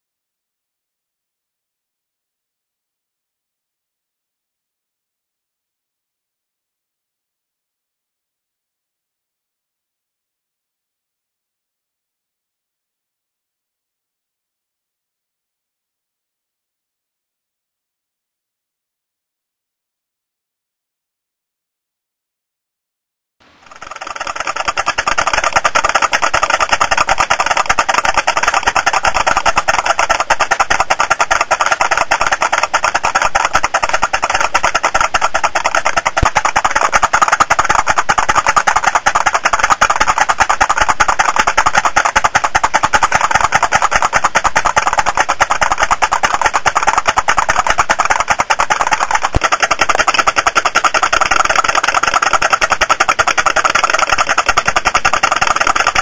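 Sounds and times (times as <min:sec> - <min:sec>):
putt-putt engine rapid tapping: 0:23.5 - 0:56.0.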